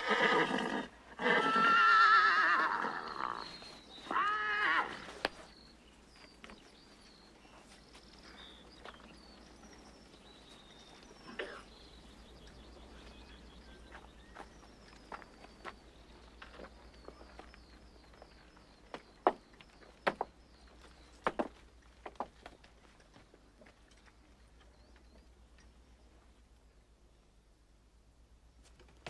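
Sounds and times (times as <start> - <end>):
horses whinnying: 0.0 - 5.3.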